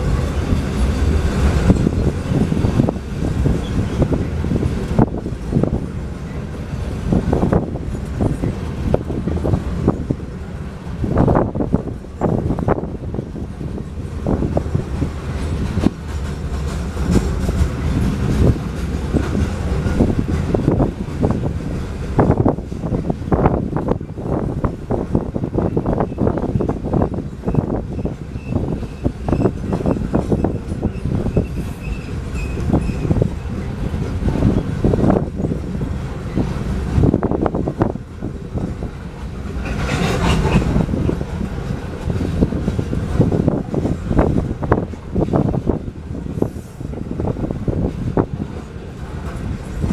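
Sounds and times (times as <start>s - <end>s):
train rumbling: 0.0s - 49.9s
wagon wheels clacking over rails: 14.9s - 22.1s, 39.1s - 43.3s.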